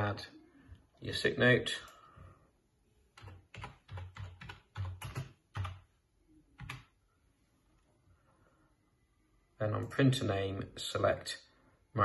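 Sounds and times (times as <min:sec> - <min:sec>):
computer keyboard typing: 0:03.1 - 0:05.9, 0:06.6 - 0:07.0.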